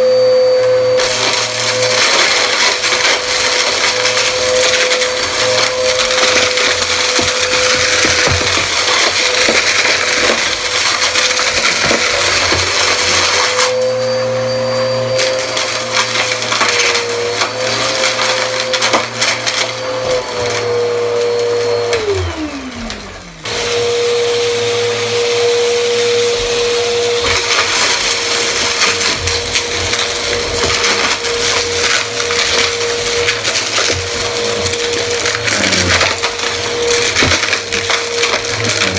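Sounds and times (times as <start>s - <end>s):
upright vacuum cleaner running: 0.0s - 38.9s
brushroll crunching and rattling: 1.0s - 13.6s, 25.8s - 38.9s.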